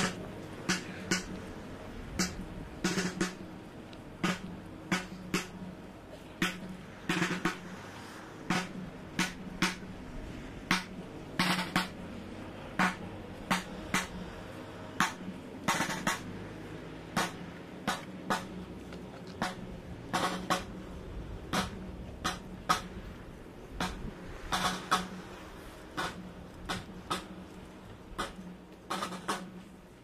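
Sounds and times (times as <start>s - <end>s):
procession drum beating: 0.0s - 1.5s, 2.1s - 3.6s, 4.2s - 5.8s, 6.4s - 7.8s, 8.5s - 10.0s, 10.7s - 12.1s, 12.8s - 14.3s, 15.0s - 16.4s, 19.4s - 20.8s, 28.1s - 29.6s.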